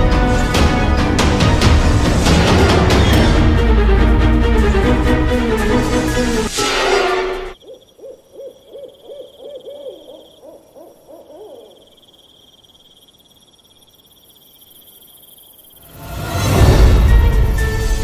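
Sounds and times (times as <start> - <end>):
music: 0.0 - 7.6, 15.9 - 18.0
high insect trill: 6.5 - 18.0
owl hooting: 7.6 - 12.2.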